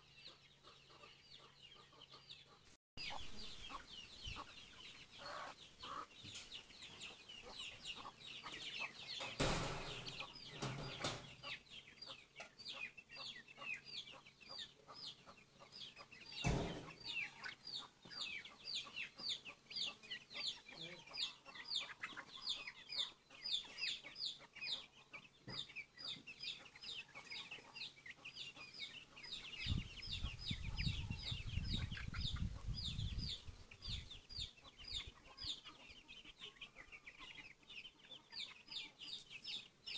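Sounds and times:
chicks peeping: 0:00.0 - 0:39.9
knocks: 0:09.3 - 0:11.3, 0:16.4 - 0:17.0.

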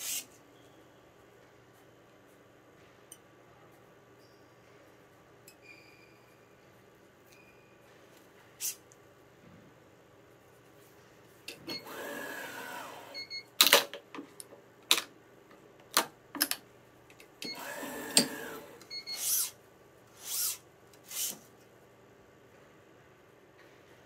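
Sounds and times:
stringing machine motor whine: 0:11.7 - 0:13.2.

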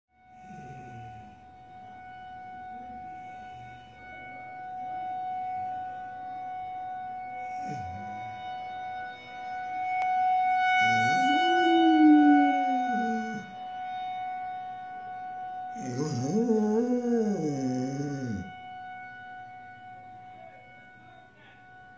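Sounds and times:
warning siren steady tone: 0:00.1 - 0:21.9
dog howling: 0:07.4 - 0:08.4, 0:10.8 - 0:13.6, 0:15.8 - 0:18.6.

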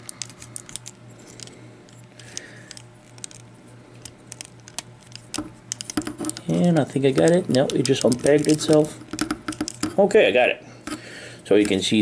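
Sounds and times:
toy parts clicking and rattling: 0:00.0 - 0:10.0
low steady hum: 0:00.0 - 0:12.0.

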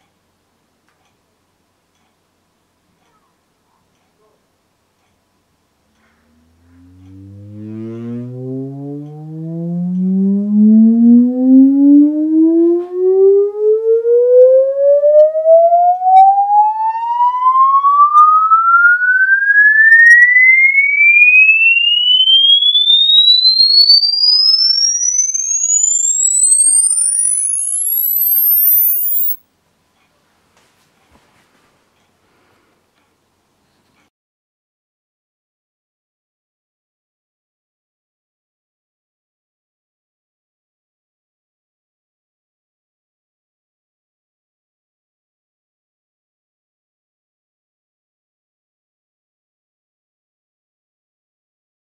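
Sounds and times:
sine wave frequency sweep: 0:06.0 - 0:29.4.

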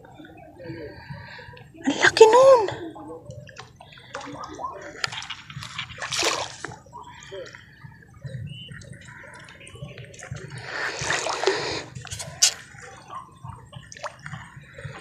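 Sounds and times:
water splashing at shoreline: 0:03.5 - 0:07.6, 0:08.7 - 0:15.0
small drips and clicks: 0:08.2 - 0:10.6, 0:13.5 - 0:15.0.

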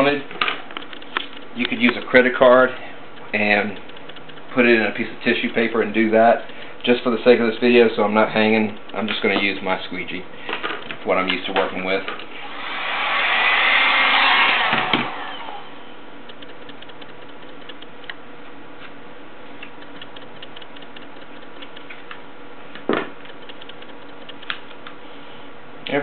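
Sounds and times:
soft ticks: 0:08.4 - 0:09.8, 0:16.2 - 0:18.2, 0:19.6 - 0:22.2, 0:23.3 - 0:25.0
sharp knock: 0:13.6 - 0:15.6.

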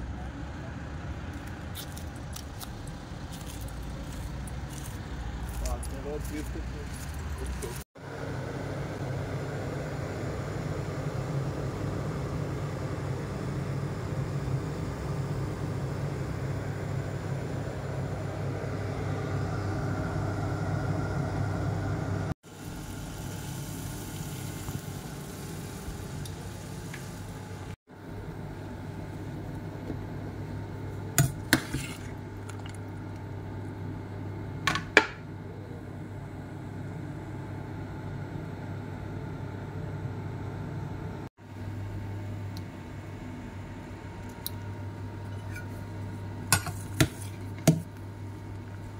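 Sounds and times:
water boiling in a pot: 0:22.4 - 0:33.8.

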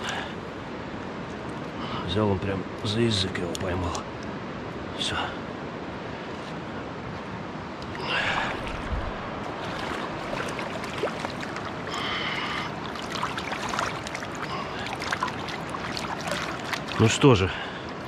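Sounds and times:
flowing stream: 0:00.0 - 0:18.0
water splashing and swishing: 0:06.1 - 0:18.0.

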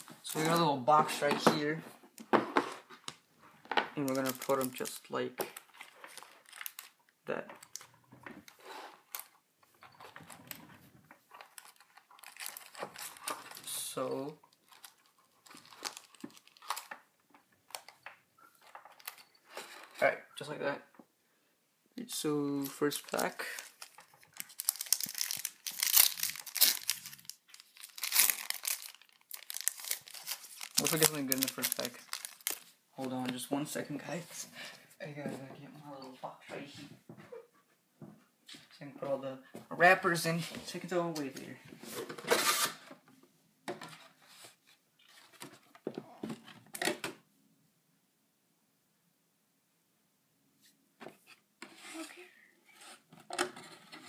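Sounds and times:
foil wrapper tearing and crinkling: 0:05.7 - 0:07.0, 0:11.5 - 0:13.6, 0:23.0 - 0:32.6.

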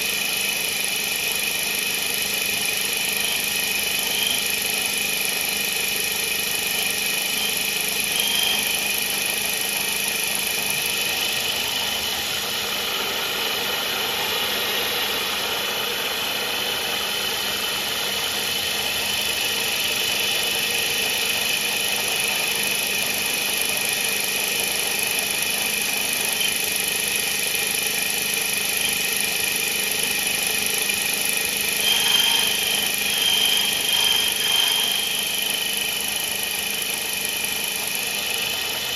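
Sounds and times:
milling machine whine: 0:00.0 - 0:38.9
metal cutting and coolant spray: 0:02.6 - 0:38.9.

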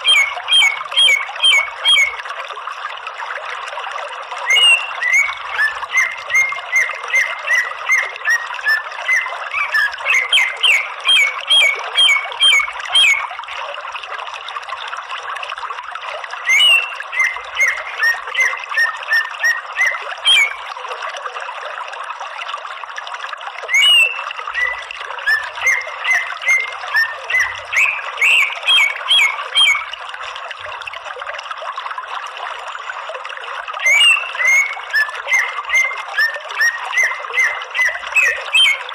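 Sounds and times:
bird calling sharp repeated notes: 0:00.0 - 0:02.2, 0:04.4 - 0:13.5, 0:16.4 - 0:20.6, 0:23.7 - 0:30.0, 0:33.8 - 0:38.9.

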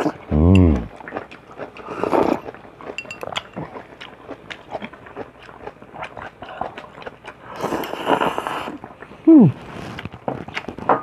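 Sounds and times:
chewing: 0:00.0 - 0:11.0
slurping noodle soup: 0:01.7 - 0:02.6, 0:06.0 - 0:10.9.

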